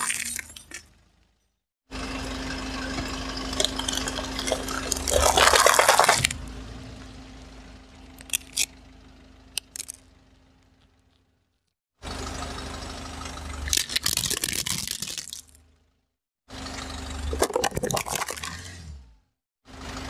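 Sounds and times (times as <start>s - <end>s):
tyre crushing foil cups: 0.0s - 0.8s, 3.6s - 6.4s, 9.6s - 10.0s, 13.7s - 15.6s
car engine hum: 0.3s - 20.0s.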